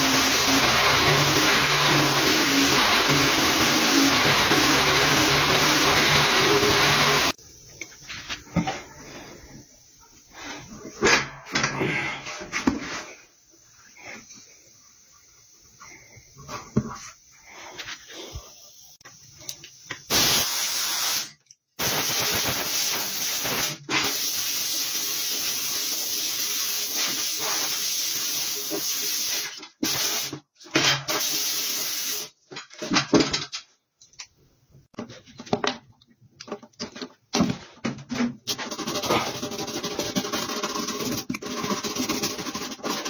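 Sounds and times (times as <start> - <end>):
compressed air blow gun hissing: 20.1 - 30.4.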